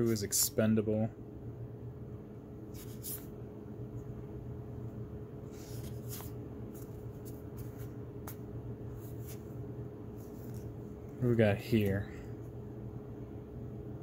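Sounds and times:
low room hum: 0:00.0 - 0:14.0
cards sliding over one another: 0:02.7 - 0:03.3, 0:05.5 - 0:09.5.

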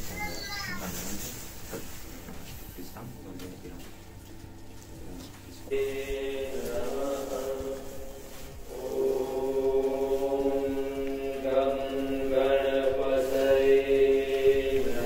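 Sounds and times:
chanting: 0:05.2 - 0:15.0.

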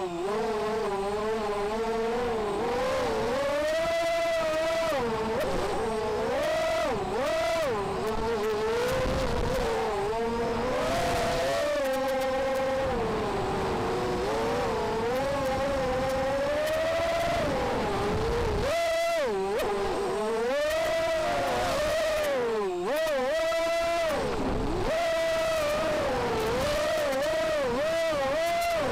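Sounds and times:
quadcopter motors whining: 0:00.0 - 0:28.9
wind rushing over microphone: 0:00.2 - 0:22.6.

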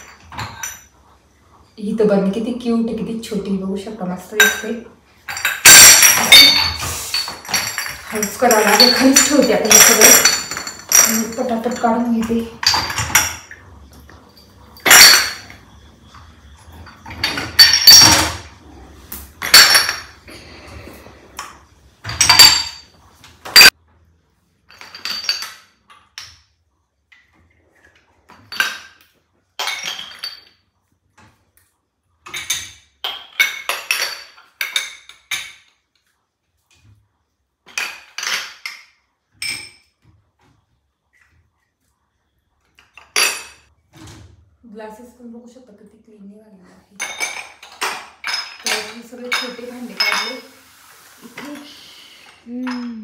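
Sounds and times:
glass jars clinking together: 0:00.0 - 0:01.0, 0:04.2 - 0:18.7, 0:19.3 - 0:20.7, 0:21.4 - 0:23.8, 0:24.6 - 0:26.4, 0:28.3 - 0:30.7, 0:32.2 - 0:35.9, 0:37.7 - 0:40.0, 0:42.8 - 0:43.7, 0:47.0 - 0:50.7, 0:51.4 - 0:53.0.

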